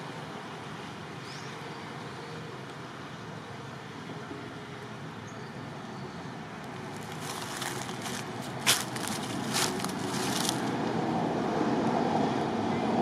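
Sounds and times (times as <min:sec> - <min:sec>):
crackling rustles: 0:06.6 - 0:10.8
low outdoor rumble: 0:06.6 - 0:11.6.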